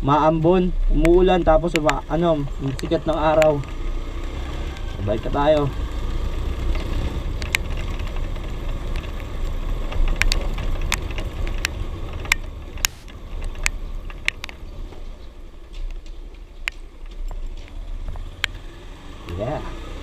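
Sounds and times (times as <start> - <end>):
motorcycle engine and wind rumble: 0.0 - 20.0
sharp clicks: 1.0 - 4.9, 6.6 - 14.7.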